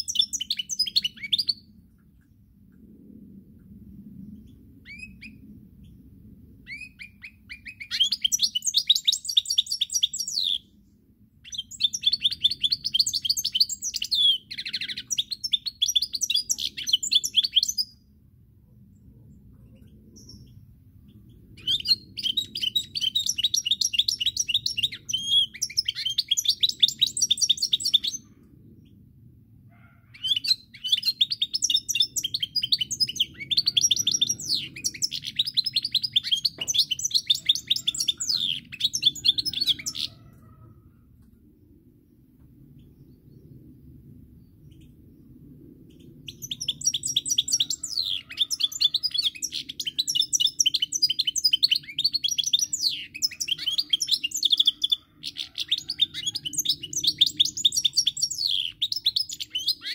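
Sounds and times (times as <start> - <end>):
goldfinch twittering song: 30.2 - 40.0.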